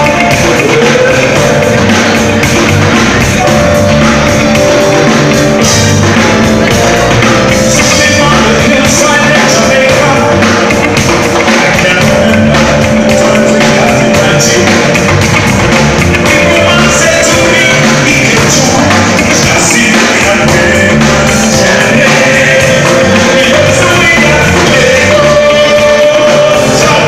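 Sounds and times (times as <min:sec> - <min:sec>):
man singing into a microphone: 0:00.0 - 0:01.9, 0:07.6 - 0:15.2, 0:16.2 - 0:27.0
reggae band playing: 0:00.0 - 0:27.0.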